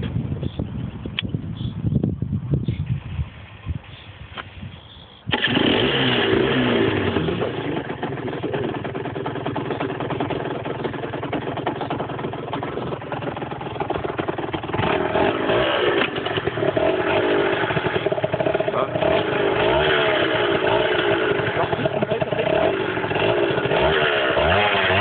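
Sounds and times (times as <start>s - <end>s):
two-stroke motorcycle engine revving: 5.3s - 25.0s.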